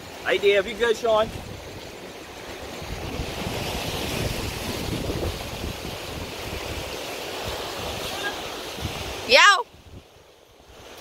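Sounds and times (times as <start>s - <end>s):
waves washing on shore: 0.0s - 11.0s
wind rumbling on microphone: 0.0s - 11.0s.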